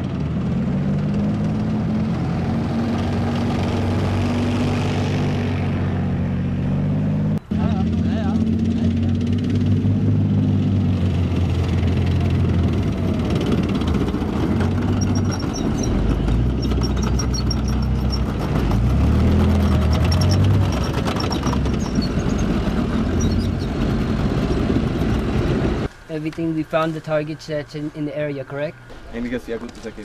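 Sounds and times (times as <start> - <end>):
tank diesel engines driving past: 0.0 - 30.0
steel tracks clicking and squeaking: 12.7 - 27.8.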